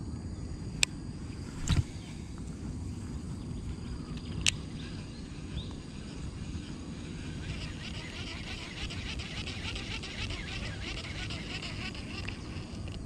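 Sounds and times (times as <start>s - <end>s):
fishing reel clicking: 7.2s - 13.0s.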